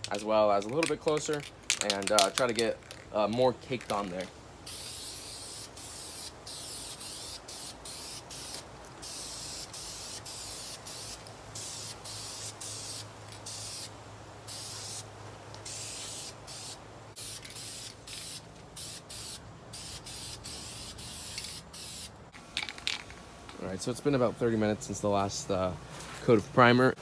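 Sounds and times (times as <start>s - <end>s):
aerosol spray hissing: 4.6s - 22.2s.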